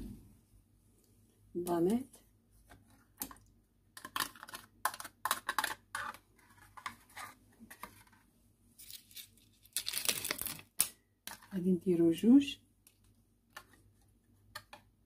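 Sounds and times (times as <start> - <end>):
packaging crinkling and tearing: 8.8 - 10.8.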